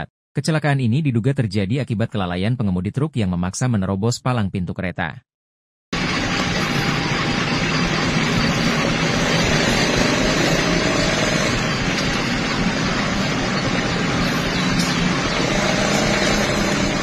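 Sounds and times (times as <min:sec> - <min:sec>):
locomotive engine idling: 0:06.0 - 0:17.0.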